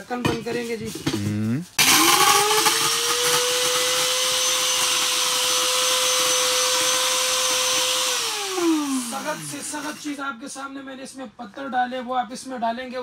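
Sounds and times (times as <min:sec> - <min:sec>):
motor spinning down: 0:01.8 - 0:10.1
electric grinder whining: 0:01.8 - 0:10.2.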